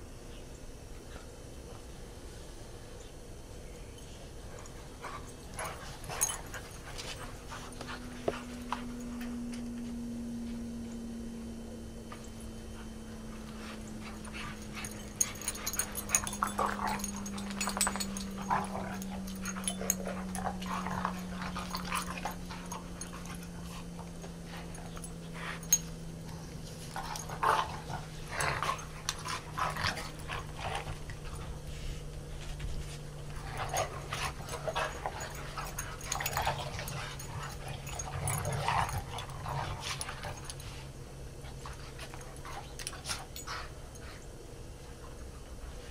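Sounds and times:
faint low hum: 0:00.0 - 0:45.9
dogs play-wrestling vocalizing: 0:04.5 - 0:09.0, 0:12.8 - 0:44.2.

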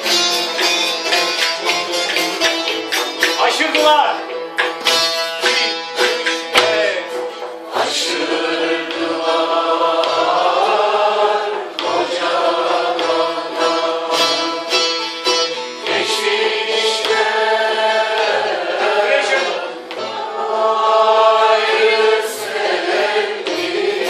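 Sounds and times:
long-necked lute playing: 0:00.0 - 0:03.4, 0:04.2 - 0:08.2, 0:13.2 - 0:20.2
choir singing in unison: 0:06.6 - 0:14.8, 0:15.8 - 0:24.0.

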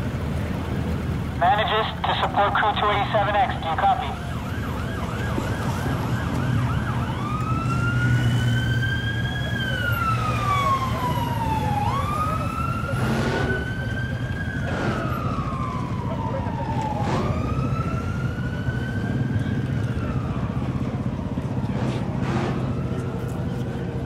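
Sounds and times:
emergency vehicle siren: 0:00.0 - 0:24.0.

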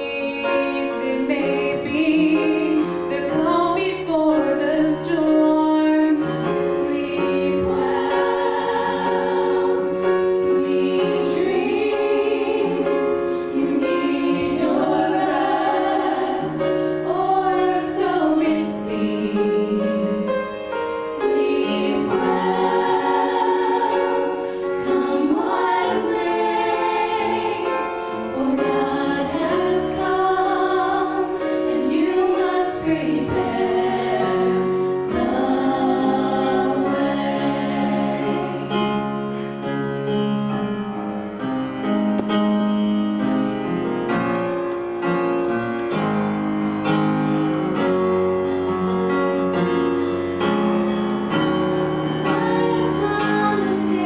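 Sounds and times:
women singing in harmony: 0:00.0 - 0:39.1, 0:52.0 - 0:54.0.

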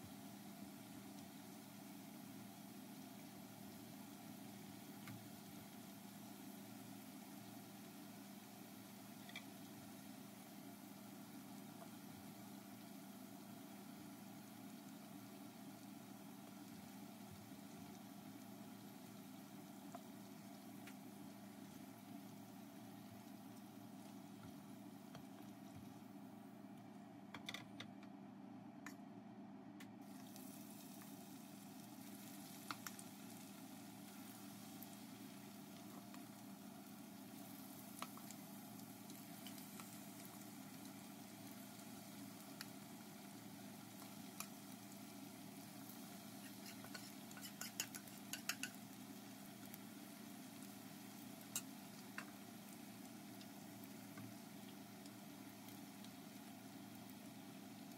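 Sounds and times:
food sizzling in hot oil: 0:00.0 - 0:25.8, 0:30.0 - 0:57.9
tongs and spoon clinking on pan: 0:46.4 - 0:48.8.

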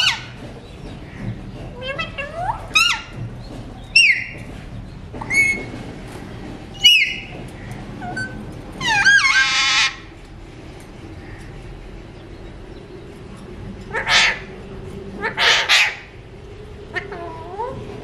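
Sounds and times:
parakeet squawking: 0:08.0 - 0:10.0, 0:13.9 - 0:14.5, 0:15.2 - 0:16.1.

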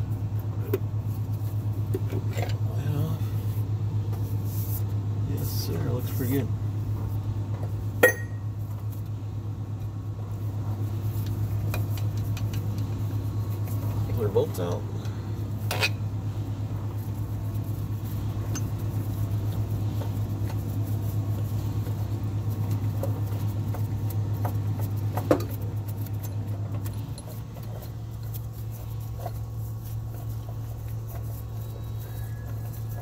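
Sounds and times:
steady low hum: 0:00.0 - 0:33.0
sharp metal clink: 0:08.0 - 0:08.4.

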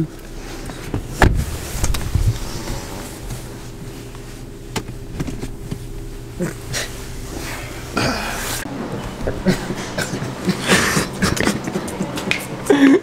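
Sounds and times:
car cabin hum: 0:00.0 - 0:12.8
rustling: 0:00.3 - 0:09.2.

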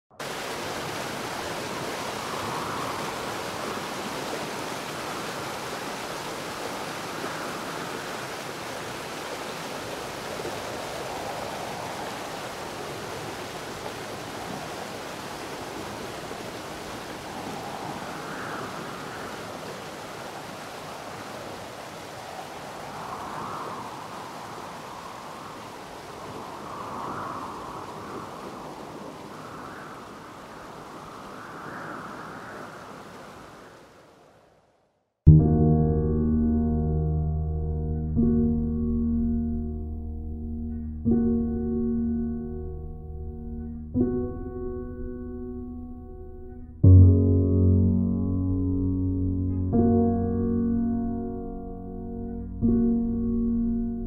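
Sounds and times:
river rushing over rapids: 0:00.2 - 0:34.4.

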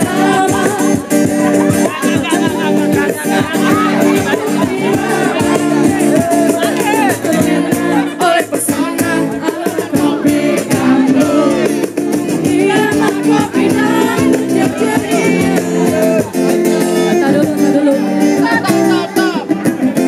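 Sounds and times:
busy percussion: 0:00.0 - 0:20.0
held chords: 0:00.0 - 0:20.0
singing voice: 0:00.0 - 0:20.0.

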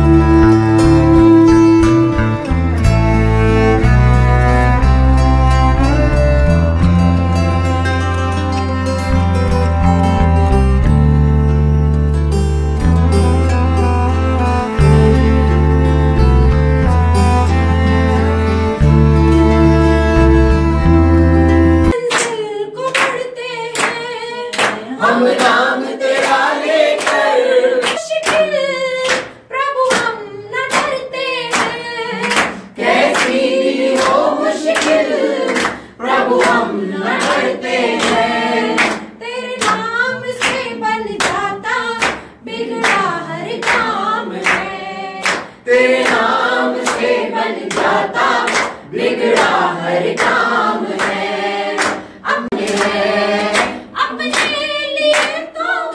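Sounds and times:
group singing: 0:21.7 - 0:29.2, 0:31.2 - 0:55.9
rhythmic hand clapping: 0:21.9 - 0:55.6.

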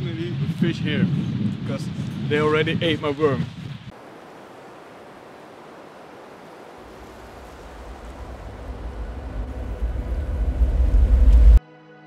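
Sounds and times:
wind buffeting microphone: 0:00.0 - 0:11.6
stream water flowing: 0:03.9 - 0:10.9.

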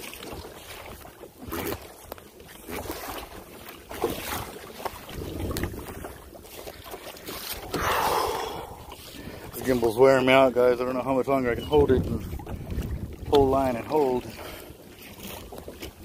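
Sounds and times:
water splashing around kayak: 0:00.0 - 0:16.0
wind buffeting microphone: 0:05.0 - 0:06.8, 0:07.6 - 0:14.3.

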